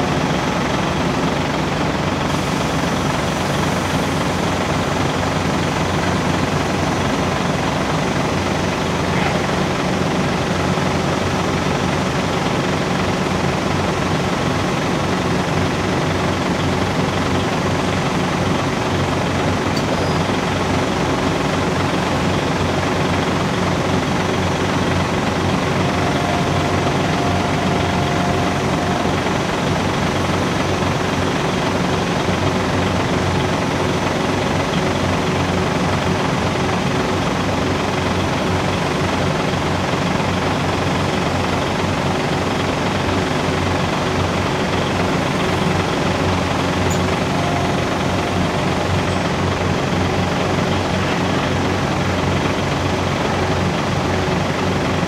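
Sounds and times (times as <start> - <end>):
diesel engines throbbing hum: 0.0 - 55.0
thin high tone: 25.4 - 30.4, 46.8 - 49.8.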